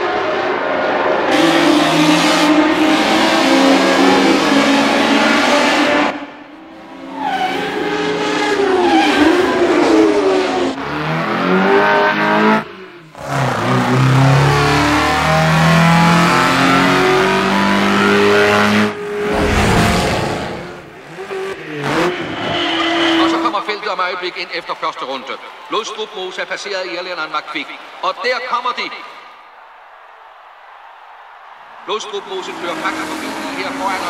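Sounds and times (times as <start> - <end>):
racing car engines revving: 0.0 - 23.9, 32.0 - 34.0.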